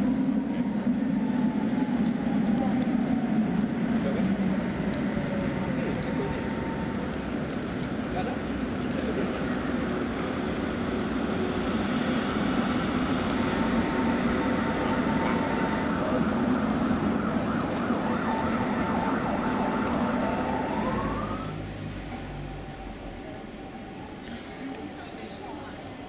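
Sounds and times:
tram wheels rumbling on rail: 0:00.0 - 0:26.0
rising whine: 0:10.6 - 0:23.9.

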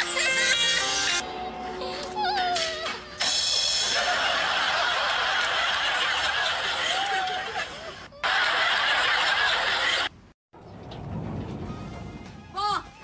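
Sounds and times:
breathy laughter: 0:03.8 - 0:10.1.

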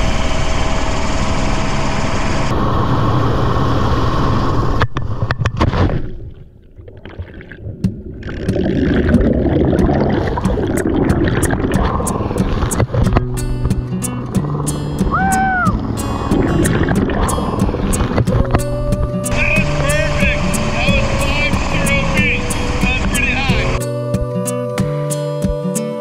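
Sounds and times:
helicopter hovering: 0:00.0 - 0:04.8, 0:10.4 - 0:23.8
rushing wind: 0:00.0 - 0:05.6, 0:07.7 - 0:23.8
underwater bubbles churning: 0:04.6 - 0:23.8
splash into water: 0:05.4 - 0:13.2.

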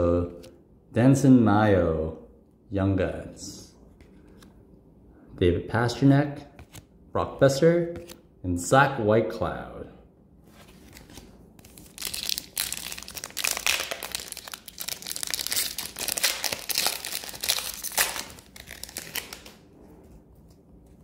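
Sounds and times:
foil wrapper crinkling: 0:11.6 - 0:19.6.

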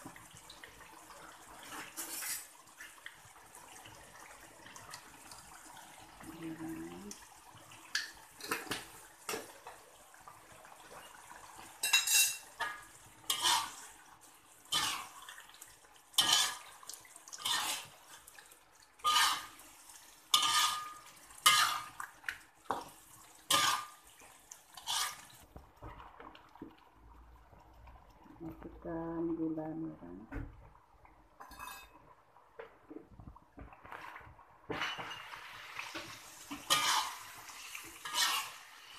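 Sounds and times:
metal spatula scraping a wok: 0:01.7 - 0:02.5, 0:13.3 - 0:13.9, 0:14.7 - 0:15.2, 0:16.2 - 0:16.7, 0:17.4 - 0:17.9, 0:19.0 - 0:19.6, 0:20.3 - 0:22.0, 0:23.5 - 0:24.0, 0:24.8 - 0:25.4, 0:35.9 - 0:38.9.

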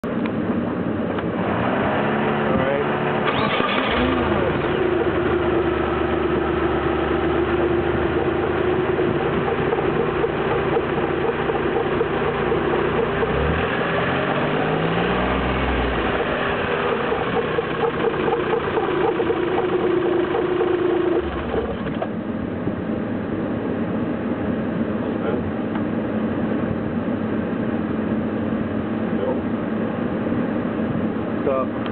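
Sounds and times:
car engine running: 0:00.0 - 0:31.9
turbo compressor spinning: 0:01.5 - 0:22.2
electric radiator fan: 0:03.4 - 0:31.4.

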